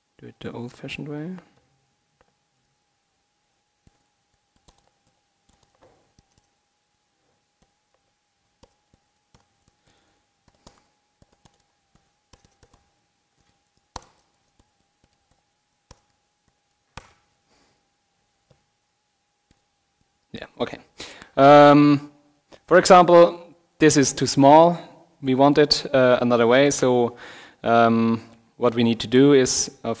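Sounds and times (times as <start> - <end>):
faint high hum: 0.0 - 30.0
keyboard typing clicks: 3.8 - 6.5, 8.6 - 9.8, 10.4 - 12.8.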